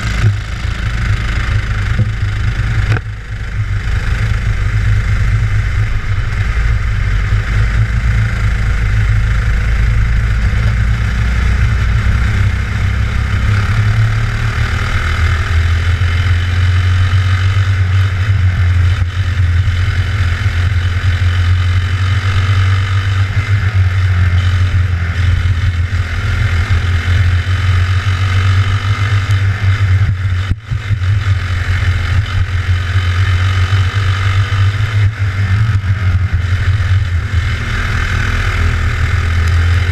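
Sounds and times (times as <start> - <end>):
kart engine running hard: 0.0 - 39.9.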